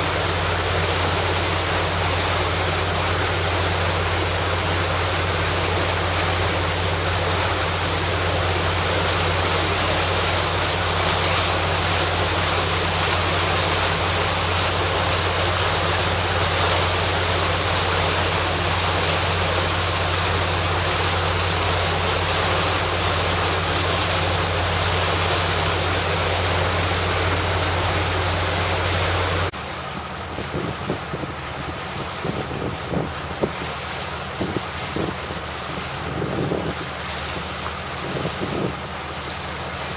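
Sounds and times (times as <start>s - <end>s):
motor boat engine drone: 0.0s - 39.9s
water rushing: 0.0s - 39.9s
wind buffeting microphone: 30.0s - 38.8s.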